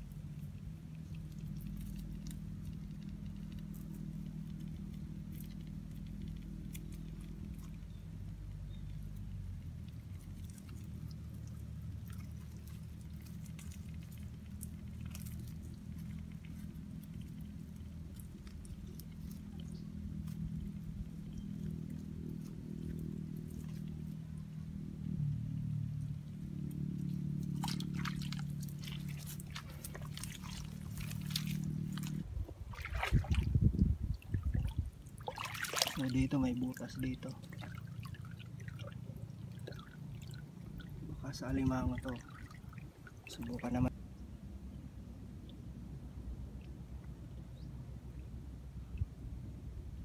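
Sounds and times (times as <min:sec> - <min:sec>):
steady low hum: 0:00.0 - 0:50.0
hand squelching in wet mud: 0:09.8 - 0:20.5, 0:27.0 - 0:40.8.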